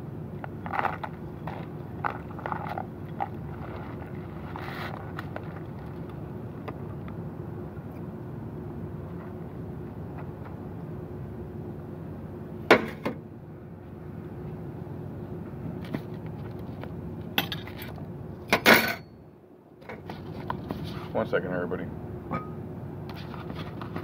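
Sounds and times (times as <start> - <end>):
low background rumble: 0.0 - 24.0
tableware clattering: 18.6 - 19.1.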